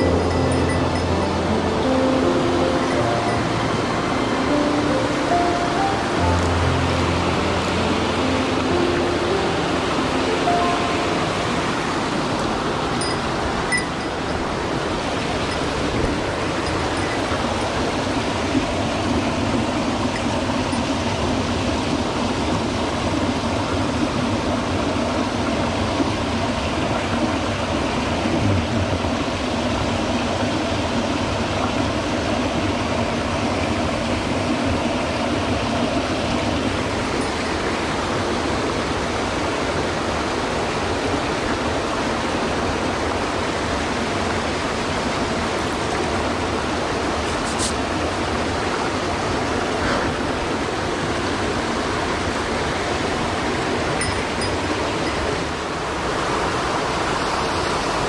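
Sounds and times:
small waterfall into pool: 0.0s - 58.0s
stream rushing over rocks: 0.0s - 58.0s.

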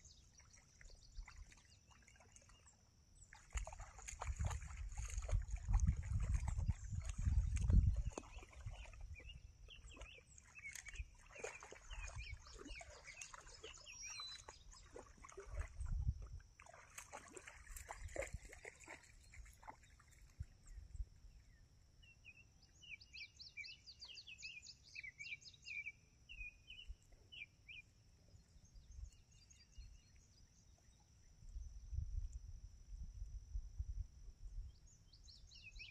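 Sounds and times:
low wind rumble: 4.3s - 9.6s, 15.8s - 16.4s, 31.5s - 34.9s
birds chirping and singing: 5.8s - 15.0s.

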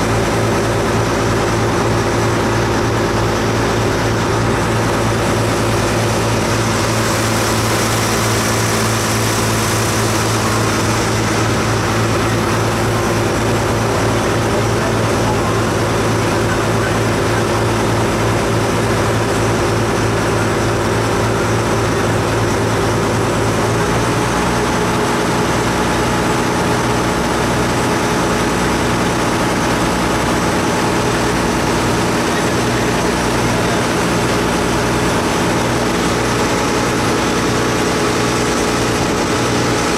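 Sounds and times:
ferry engine droning: 0.0s - 39.9s
wind and water hiss: 3.2s - 14.2s.

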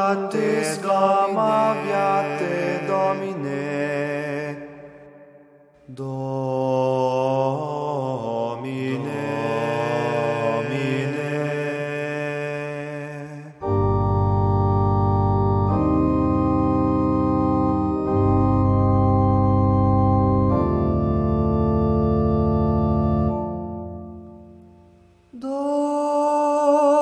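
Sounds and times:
choir holding a sung chord: 0.0s - 5.0s, 6.0s - 12.9s
organ playing sustained chords: 0.3s - 3.3s, 13.6s - 25.0s.

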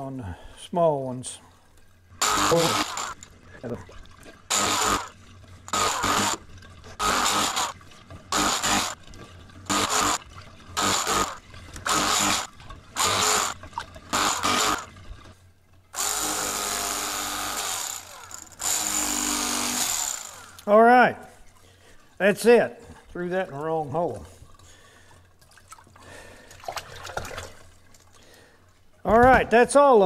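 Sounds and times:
small electric motor bursts: 2.2s - 3.2s, 4.5s - 6.4s, 7.0s - 9.0s, 9.7s - 10.2s, 10.8s - 14.9s, 15.9s - 20.7s.

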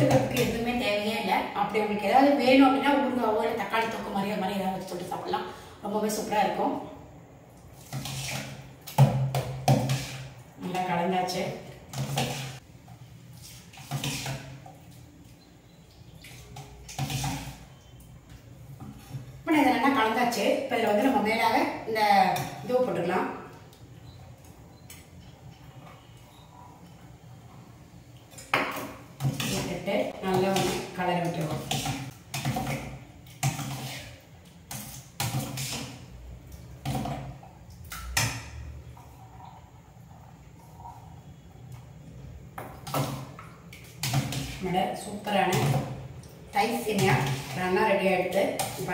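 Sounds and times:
spoon stirring in steel pot: 7.7s - 19.4s, 28.3s - 39.7s, 42.6s - 48.9s
ladle scraping metal pot: 9.6s - 10.4s, 11.3s - 12.6s, 13.3s - 14.7s, 16.2s - 18.0s, 33.4s - 36.1s.

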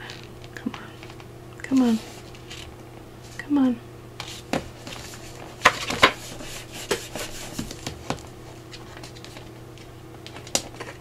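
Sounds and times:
paper rubbing and rustling: 4.2s - 9.5s.

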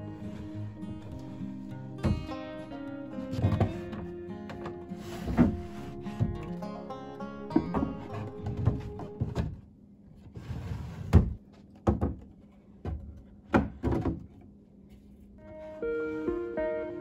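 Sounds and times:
background music: 0.0s - 9.4s, 15.4s - 17.0s
wooden drawer scraping slide: 3.2s - 6.5s, 10.2s - 11.4s.

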